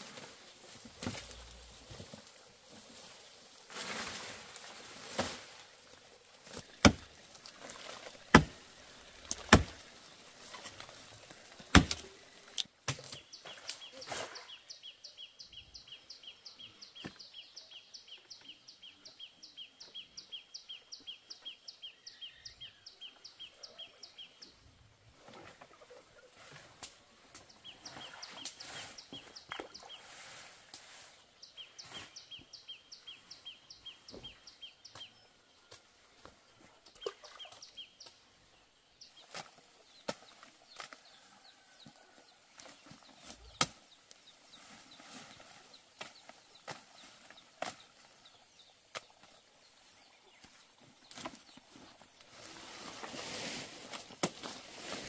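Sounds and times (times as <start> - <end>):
bamboo being chopped: 6.5 - 9.9, 11.6 - 12.2, 12.8 - 13.7, 42.6 - 43.8, 54.0 - 54.6.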